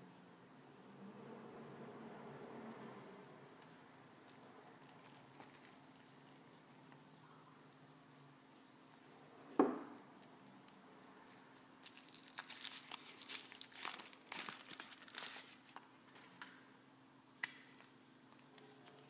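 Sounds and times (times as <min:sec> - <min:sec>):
foil wrapper crinkling and tearing: 0:04.8 - 0:06.8, 0:11.2 - 0:16.5
thump: 0:09.6 - 0:09.9.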